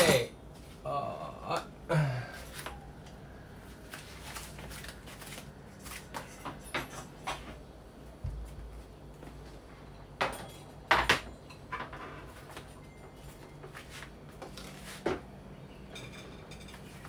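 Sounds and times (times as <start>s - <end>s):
kitchenware knocks and clinks: 10.2s - 12.3s, 15.9s - 17.0s
metal bowls and pot clattering: 15.9s - 17.0s.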